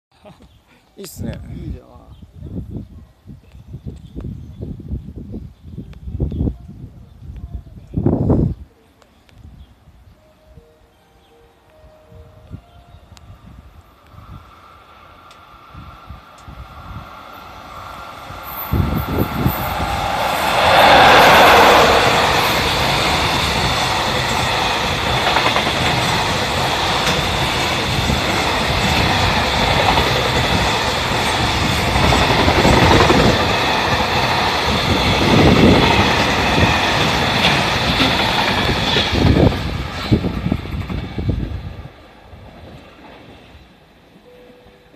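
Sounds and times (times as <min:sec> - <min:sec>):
electric locomotive passing: 0:09.8 - 0:44.9.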